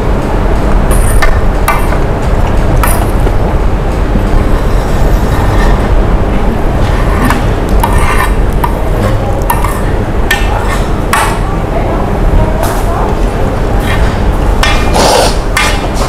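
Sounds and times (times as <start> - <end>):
low background rumble: 0.0 - 16.0
spoon scraping a plate: 4.7 - 5.9, 6.8 - 11.4, 13.8 - 16.0.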